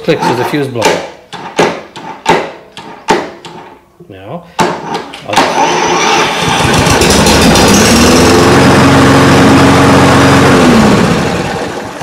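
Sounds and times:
lawn mower engine running: 5.4 - 12.0.

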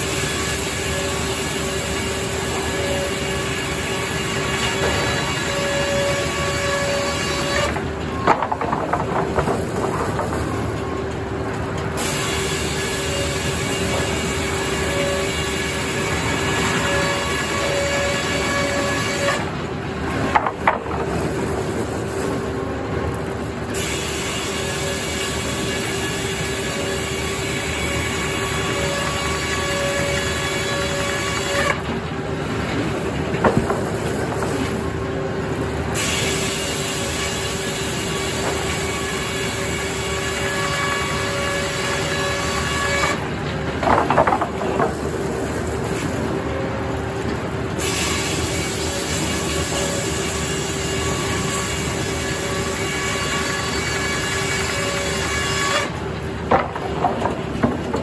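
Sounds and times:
circular saw blade cutting logs: 0.0 - 11.1, 11.7 - 47.0, 47.8 - 58.0
constant machine hum: 0.0 - 58.0
wooden knocks: 8.2 - 10.6, 20.3 - 21.1, 43.8 - 45.0, 56.5 - 58.0.

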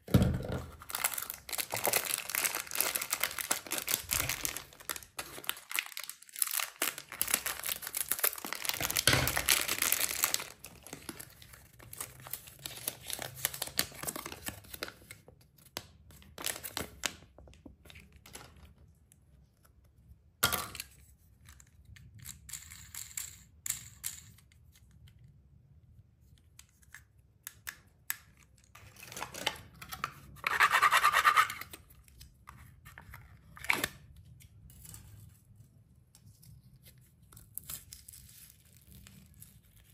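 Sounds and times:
plastic wrappers crinkling: 0.8 - 15.1.

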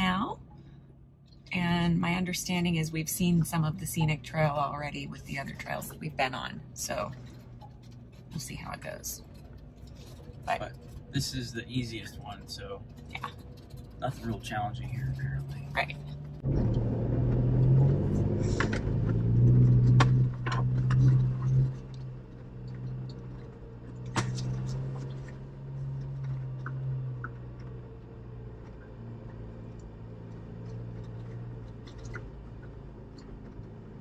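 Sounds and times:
vehicle engine low drone: 0.0 - 34.0
sharp knocks and rattles: 7.1 - 8.4, 9.2 - 11.2, 12.3 - 34.0.

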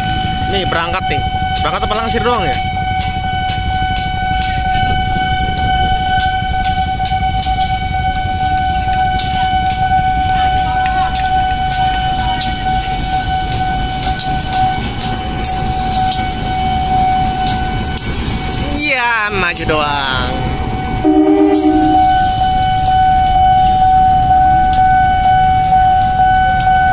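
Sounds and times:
wheels clicking over rail joints: 0.0 - 21.0
locomotive engine rumble: 0.0 - 26.9
steady high tone: 0.0 - 26.9.

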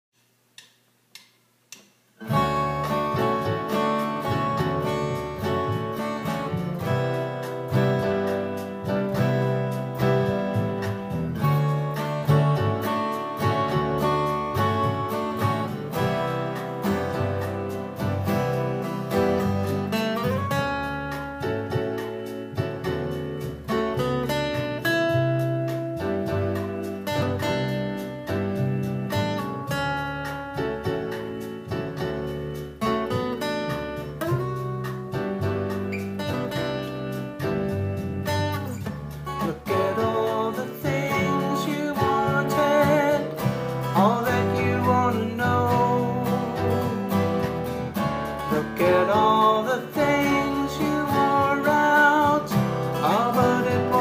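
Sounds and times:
acoustic guitar playing: 2.2 - 54.0.

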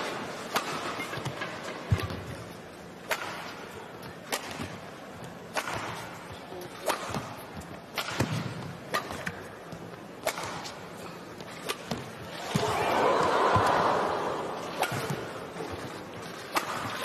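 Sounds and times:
rackets hitting shuttlecock: 0.5 - 2.4, 3.0 - 4.8, 5.4 - 17.0
crowd murmur: 12.3 - 16.2.

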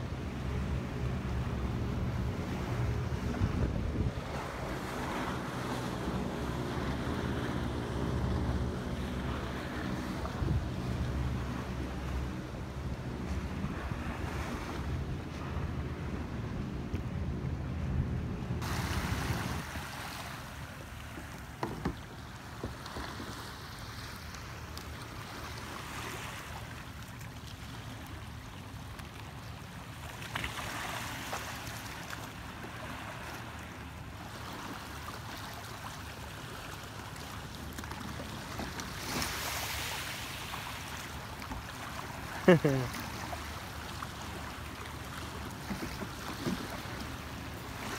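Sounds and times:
small waves lapping: 0.0 - 17.6, 18.6 - 47.9
wind rumbling on microphone: 0.0 - 19.9.

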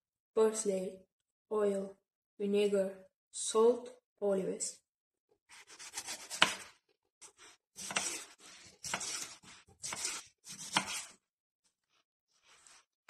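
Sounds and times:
knife cutting vegetables: 5.5 - 11.2.

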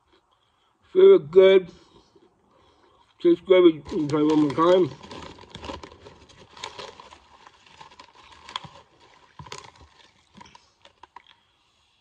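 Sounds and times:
potato chips being chewed: 3.9 - 11.5.

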